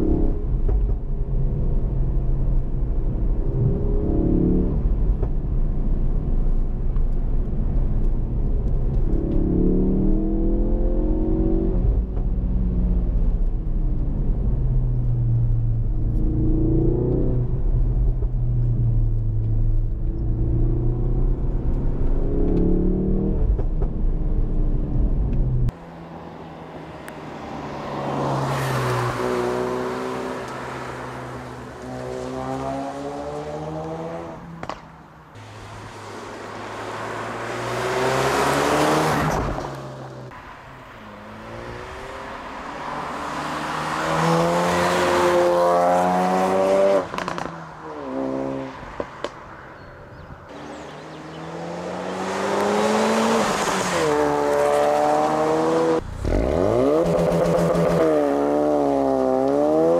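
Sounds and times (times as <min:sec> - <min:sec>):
car passing by: 0:27.1 - 0:34.4, 0:35.4 - 0:49.8, 0:50.6 - 0:57.0
car engine accelerating: 0:50.5 - 0:59.9.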